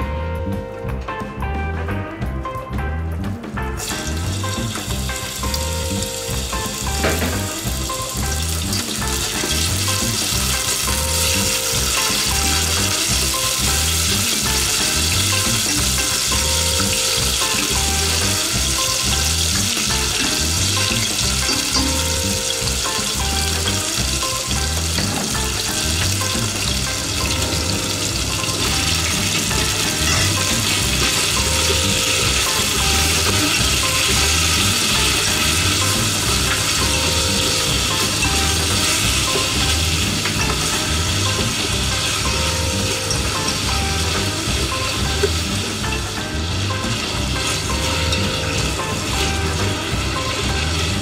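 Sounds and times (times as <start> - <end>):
background music with steady beat: 0.0 - 51.0
chicken sizzling in hot oil: 3.8 - 51.0.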